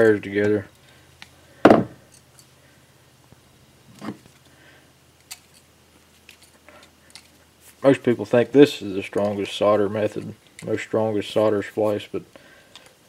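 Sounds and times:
knock: 0:01.7 - 0:01.9.

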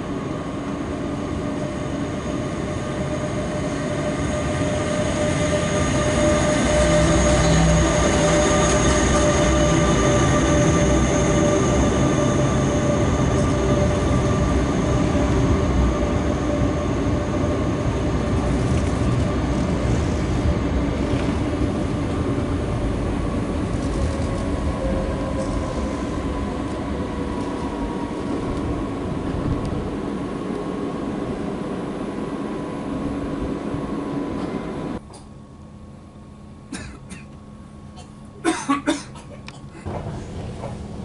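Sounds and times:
hum inside train coach: 0:00.0 - 0:41.0
electric whine: 0:00.2 - 0:29.8
train wheels rumbling: 0:00.6 - 0:34.9, 0:39.8 - 0:41.0.

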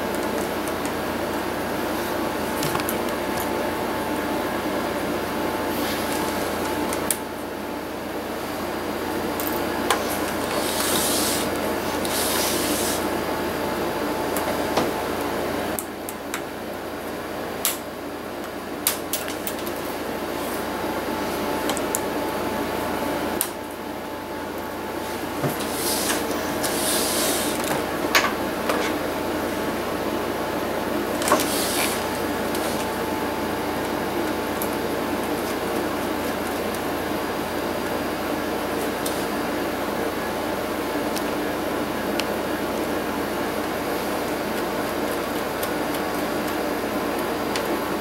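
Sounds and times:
steady mechanical hum: 0:00.0 - 0:48.0.

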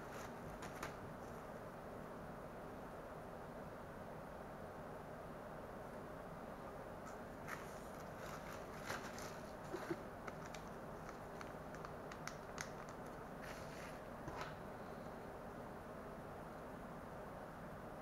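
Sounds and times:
steady hiss: 0:00.0 - 0:17.7
plastic bag crinkling: 0:07.5 - 0:14.0.

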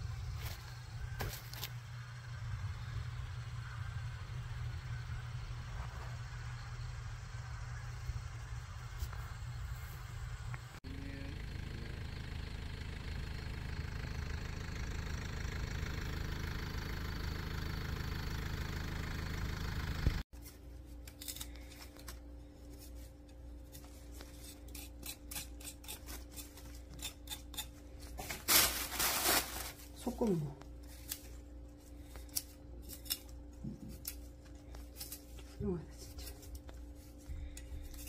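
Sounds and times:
low rumble with hiss: 0:00.0 - 0:15.3
knife cutting radish stems: 0:23.6 - 0:28.3, 0:32.0 - 0:35.4
leaves rustling: 0:28.0 - 0:31.4.

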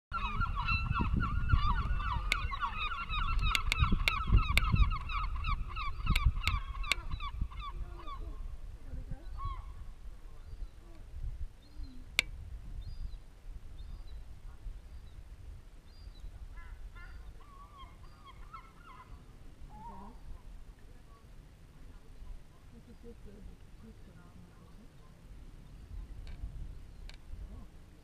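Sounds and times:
geese honking: 0:00.1 - 0:08.4
sharp clicks: 0:03.3 - 0:04.7.

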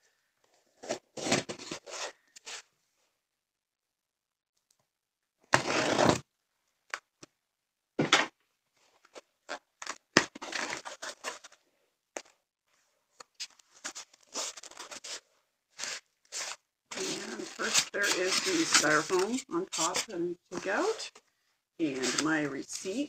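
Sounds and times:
packing tape tearing: 0:09.5 - 0:11.6, 0:13.4 - 0:15.2, 0:15.8 - 0:20.1.

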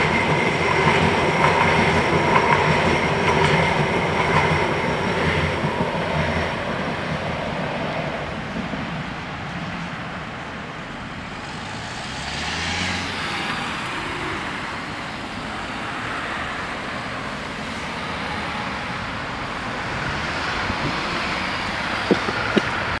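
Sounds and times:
cars driving past: 0:10.2 - 0:23.0.

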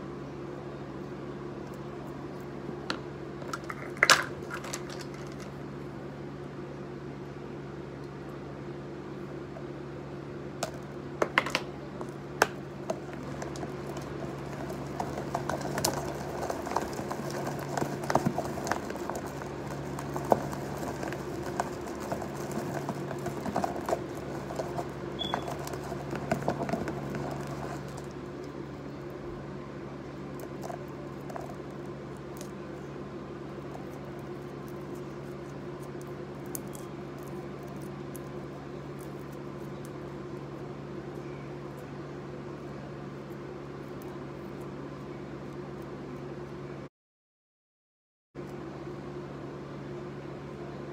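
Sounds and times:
low hum: 0:00.0 - 0:46.9
stick scraping plastic tub: 0:10.6 - 0:28.2.

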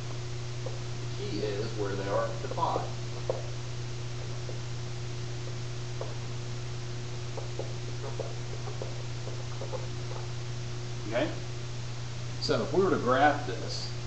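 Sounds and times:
low hum and hiss: 0:00.0 - 0:14.0
marker squeaking on whiteboard: 0:07.4 - 0:10.3.

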